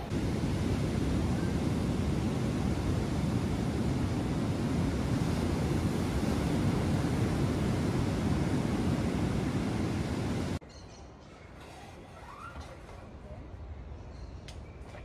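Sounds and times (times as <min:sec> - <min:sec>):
ocean surf breaking: 0:00.0 - 0:10.6
wind on microphone: 0:00.0 - 0:10.6.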